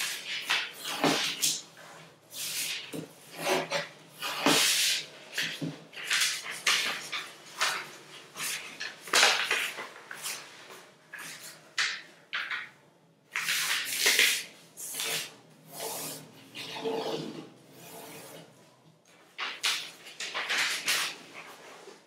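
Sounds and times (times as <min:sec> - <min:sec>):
paper rustling: 0:04.4 - 0:12.7, 0:13.3 - 0:15.3, 0:19.1 - 0:22.0
paper fold swipes: 0:13.3 - 0:16.2.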